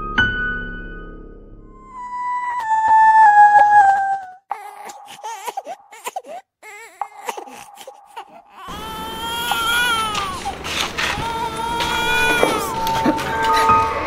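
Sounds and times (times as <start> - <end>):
music cue with rising tones: 1.6 - 5.8
infant crying: 1.8 - 14.0.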